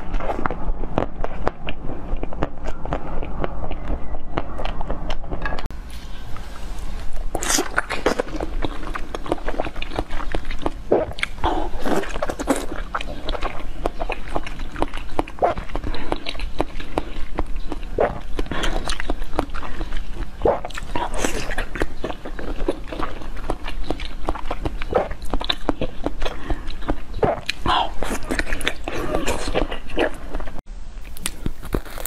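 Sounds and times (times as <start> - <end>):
chewing jelly clicks and smacks: 7.6 - 30.5.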